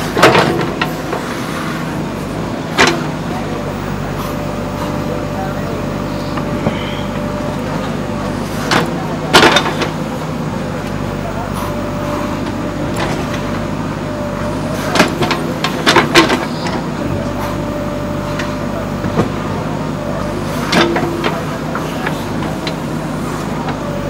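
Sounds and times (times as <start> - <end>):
loud metal clanks and knocks: 0.0 - 1.0, 8.7 - 10.0, 14.8 - 16.8, 20.6 - 22.8
diesel engine running: 0.0 - 24.0.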